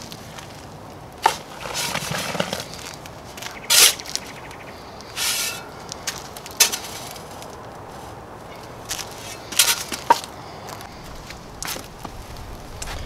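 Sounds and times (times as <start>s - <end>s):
shovel scooping soil: 1.2s - 4.3s, 5.1s - 7.4s, 8.9s - 10.3s.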